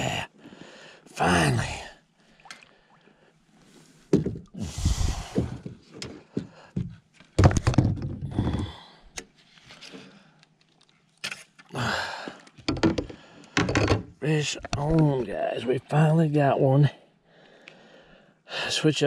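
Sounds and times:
thumps and knocks in kayak: 0:04.1 - 0:04.5, 0:07.4 - 0:08.6, 0:12.6 - 0:14.1.

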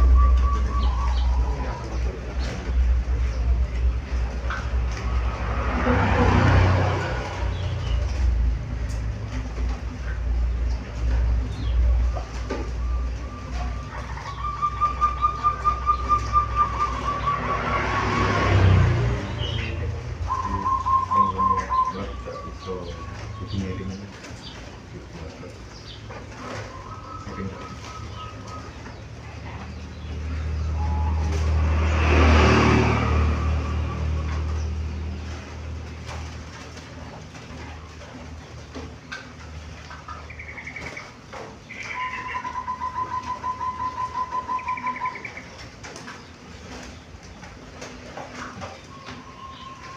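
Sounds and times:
dove cooing: 0:00.0 - 0:07.8, 0:11.2 - 0:31.5, 0:40.0 - 0:47.0.

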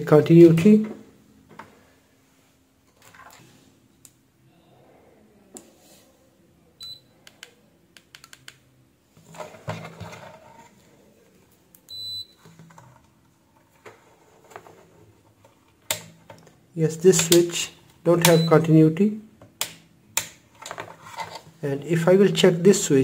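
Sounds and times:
multimeter beeps: 0:06.8 - 0:07.1, 0:11.9 - 0:12.4, 0:18.2 - 0:18.7.

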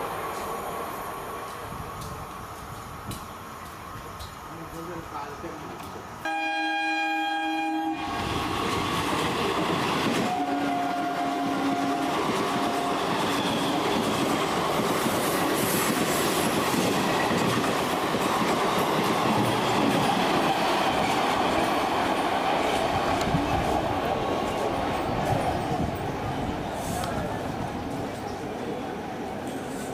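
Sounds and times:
train rumble and wheel clatter: 0:00.0 - 0:29.9
train horn blast: 0:06.2 - 0:08.3, 0:10.2 - 0:13.8.

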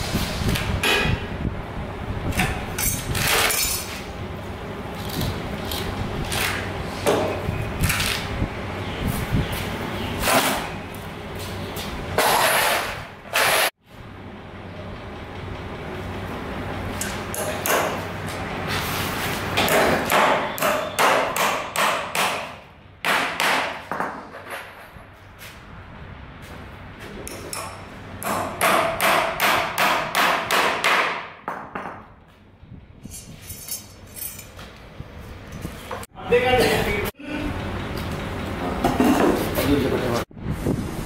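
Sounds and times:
hammer nailing timber: 0:19.6 - 0:24.3, 0:27.5 - 0:32.0.

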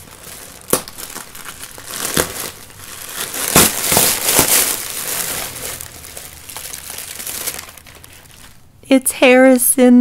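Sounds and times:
mailer package crinkling: 0:00.0 - 0:08.7.

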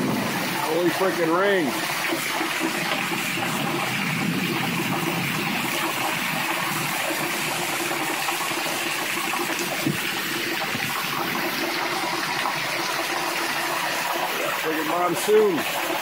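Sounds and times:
heavy rain on pavement: 0:00.0 - 0:16.0.

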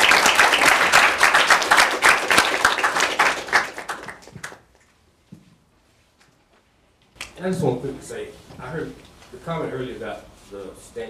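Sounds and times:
audience applauding: 0:00.0 - 0:04.7.

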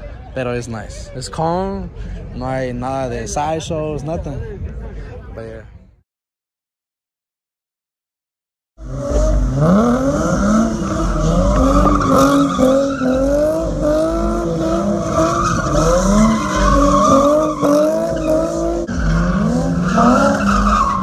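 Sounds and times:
car engine revving: 0:08.8 - 0:21.0.

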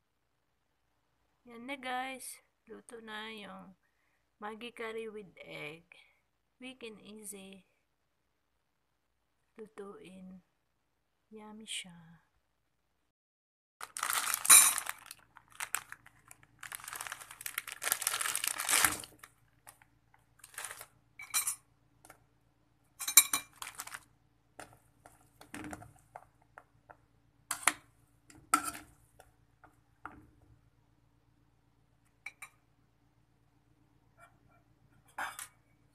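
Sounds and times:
plastic packet crinkling: 0:13.8 - 0:21.0, 0:23.4 - 0:24.8.

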